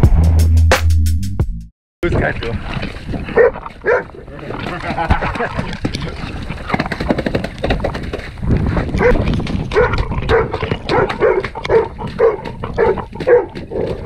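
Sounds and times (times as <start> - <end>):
water splashing in puddles: 2.1 - 14.0
dog barking: 3.4 - 4.1, 9.0 - 14.0.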